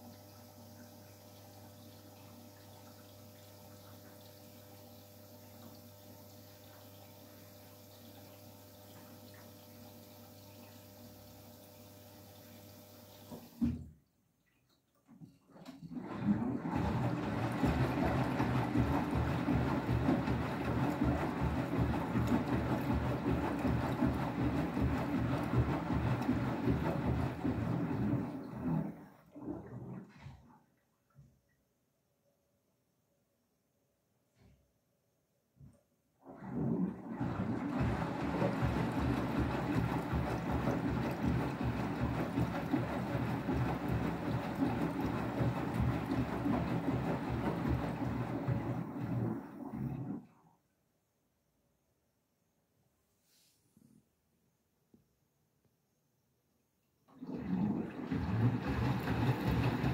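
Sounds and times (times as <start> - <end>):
washing machine sloshing water: 12.0 - 30.8, 36.2 - 50.4, 57.1 - 59.9.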